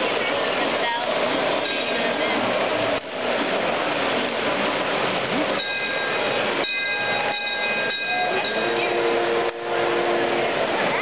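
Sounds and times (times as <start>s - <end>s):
thin high tones: 5.6s - 10.5s.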